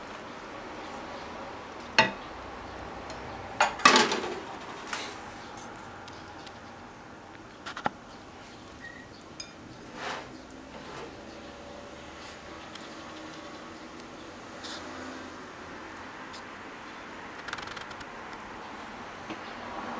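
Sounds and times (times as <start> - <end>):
chopsticks tapping ceramic bowl: 2.0 - 2.2.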